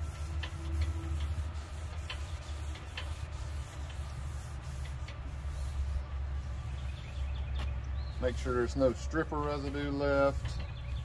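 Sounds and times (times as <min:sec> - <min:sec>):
damp cloth wiping wood: 0:00.0 - 0:06.8.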